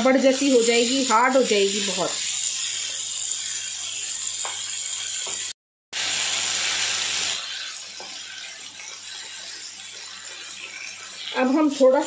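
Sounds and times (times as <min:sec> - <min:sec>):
meat sizzling in a pan: 0:00.0 - 0:12.0
spatula stirring: 0:07.0 - 0:12.0.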